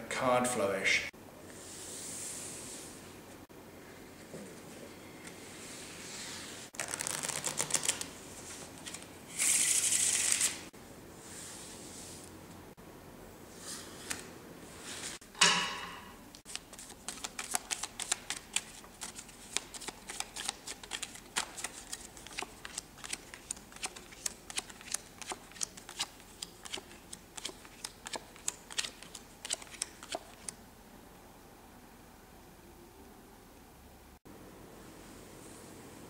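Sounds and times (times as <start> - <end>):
deck of cards rustling: 6.8 - 10.6, 16.5 - 30.6.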